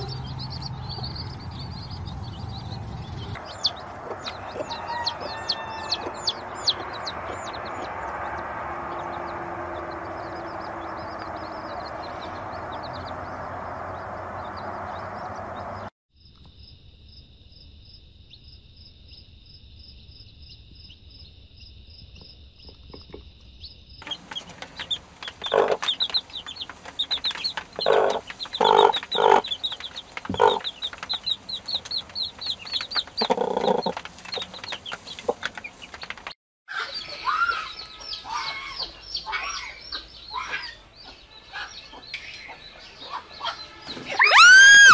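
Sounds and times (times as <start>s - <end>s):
baby chicks peeping: 0.0s - 15.9s, 19.8s - 44.9s
hen clucking: 1.9s - 7.9s, 24.0s - 31.0s, 33.0s - 35.4s.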